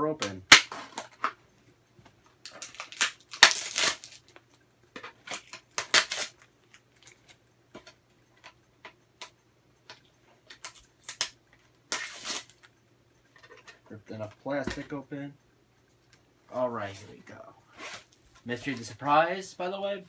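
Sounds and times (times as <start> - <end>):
plastic packaging tearing: 2.5 - 4.2, 5.3 - 6.5, 11.9 - 12.7.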